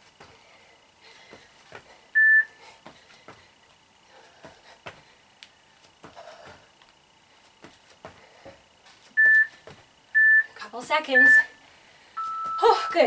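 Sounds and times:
short electronic timer beep: 0:10.2 - 0:10.5, 0:11.2 - 0:11.6, 0:12.2 - 0:13.0.

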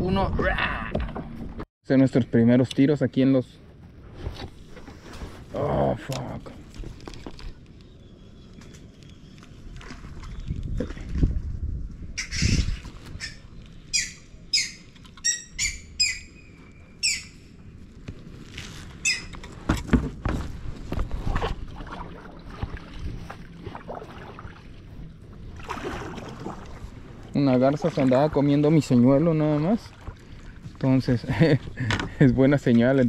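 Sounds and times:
heron squawking: 0:12.2 - 0:17.4, 0:19.0 - 0:19.3.

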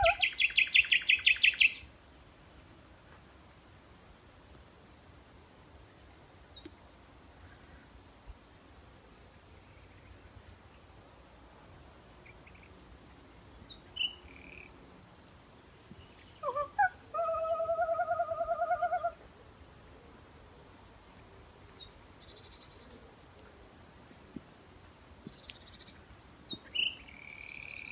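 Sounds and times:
woman trilling like a bird: 0:00.0 - 0:00.3
faint high bird chirps: 0:00.0 - 0:01.9, 0:13.6 - 0:14.7, 0:24.6 - 0:27.9.

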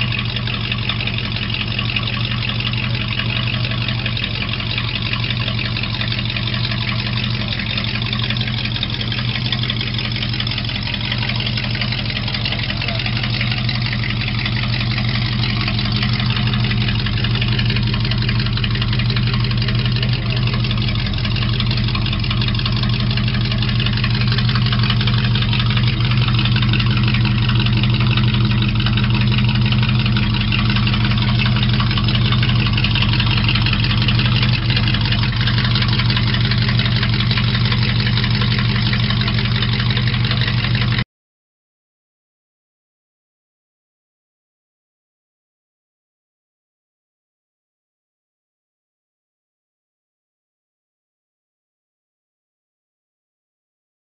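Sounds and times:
car engine idling: 0:00.0 - 0:41.0.

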